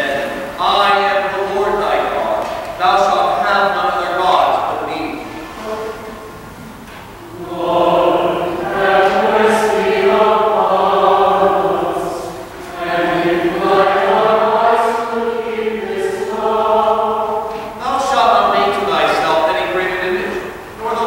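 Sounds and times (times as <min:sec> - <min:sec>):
choir singing plain chant: 0:07.1 - 0:21.0.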